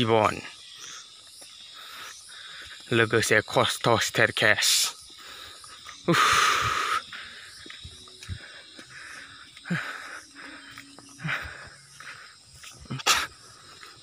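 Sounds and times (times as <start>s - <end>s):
person breathing hard: 0.8s - 2.9s, 5.1s - 14.0s.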